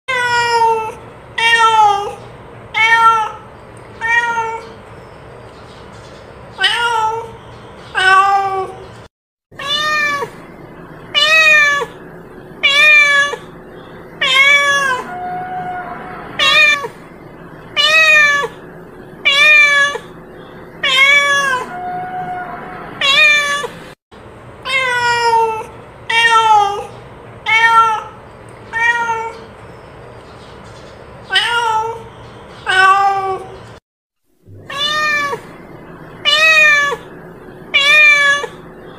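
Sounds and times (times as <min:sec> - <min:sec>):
cat meowing: 0:02.8 - 0:04.8, 0:09.6 - 0:10.4, 0:11.1 - 0:12.0, 0:12.6 - 0:13.5, 0:14.2 - 0:17.0, 0:17.8 - 0:18.6, 0:19.2 - 0:20.2, 0:20.8 - 0:23.8, 0:24.7 - 0:29.4, 0:34.6 - 0:35.6, 0:36.2 - 0:37.1, 0:37.7 - 0:38.6.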